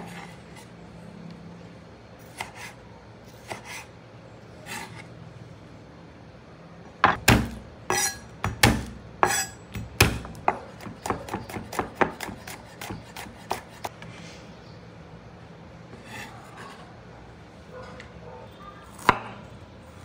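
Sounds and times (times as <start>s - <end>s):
knife chopping on cutting board: 3.4s - 3.9s, 7.0s - 13.9s.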